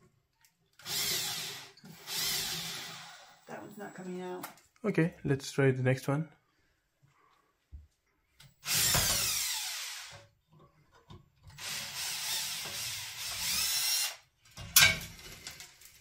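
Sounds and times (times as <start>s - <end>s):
power drill whining: 0.8s - 3.7s, 8.6s - 10.3s, 11.5s - 14.3s.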